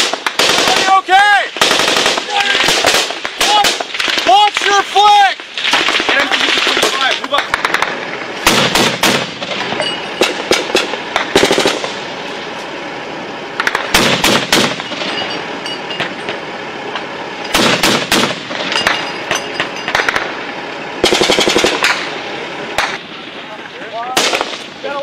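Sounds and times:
automatic gunfire bursts: 0:00.0 - 0:04.0, 0:05.7 - 0:09.6, 0:10.2 - 0:12.0, 0:13.6 - 0:14.9, 0:17.5 - 0:18.7, 0:21.0 - 0:22.1.

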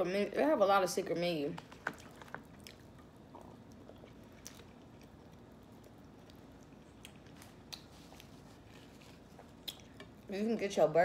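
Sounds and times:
chewing fries: 0:01.6 - 0:10.3.

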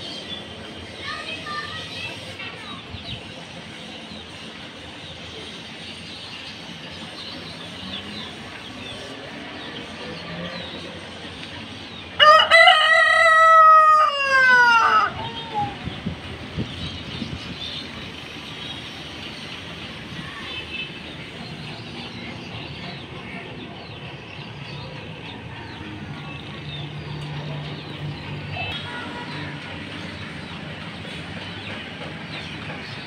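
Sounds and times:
rooster crowing: 0:12.2 - 0:15.2.

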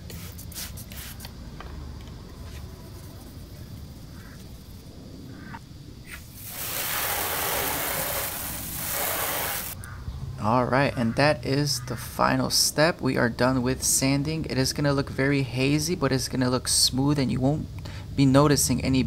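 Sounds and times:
sandpaper rubbing: 0:00.0 - 0:01.3, 0:06.5 - 0:09.8
spray bottle squirts: 0:00.1 - 0:01.3, 0:06.1 - 0:09.8
hose spraying water: 0:06.1 - 0:09.8.

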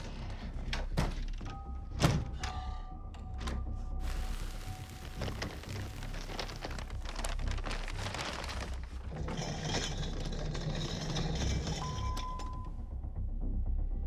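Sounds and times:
low hum: 0:02.8 - 0:09.4
granules pouring into metal tub: 0:04.0 - 0:11.8.

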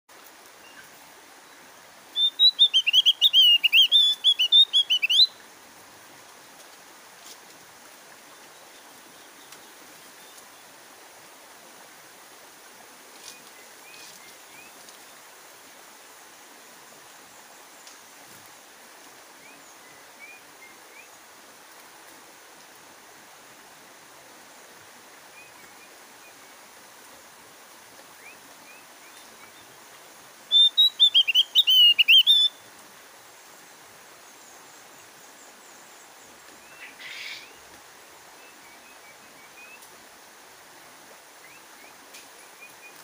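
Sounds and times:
steady hiss: 0:00.1 - 0:43.0
bird chirps: 0:02.1 - 0:05.4, 0:30.5 - 0:32.6
bird singing high chattering notes: 0:02.2 - 0:05.4, 0:30.5 - 0:32.6.

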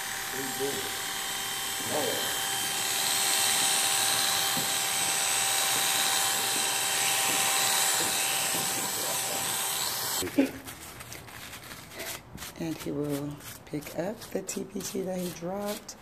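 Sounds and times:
electric hair clipper buzzing: 0:00.0 - 0:10.2.

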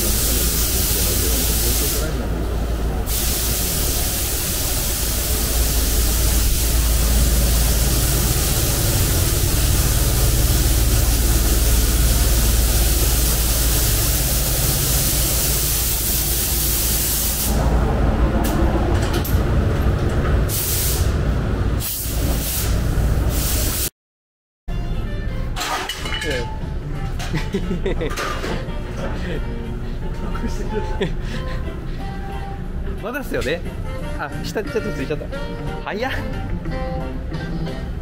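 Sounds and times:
compressed air hissing: 0:00.0 - 0:17.6, 0:20.5 - 0:21.2, 0:21.8 - 0:23.9.

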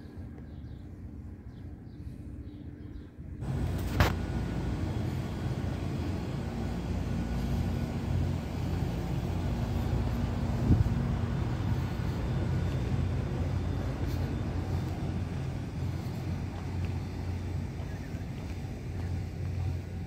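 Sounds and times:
air conditioning unit humming: 0:00.0 - 0:20.0.

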